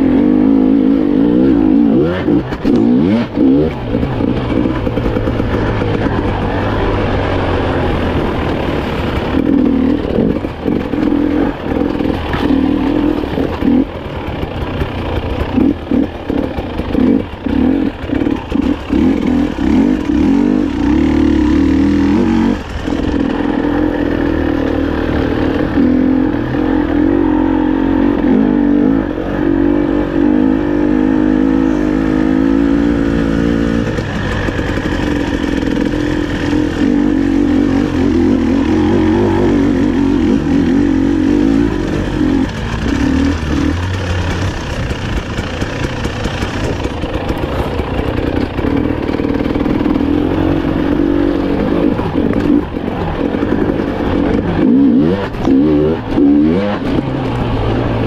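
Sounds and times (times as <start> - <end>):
two-stroke motorcycle engine revving: 0.0 - 58.0.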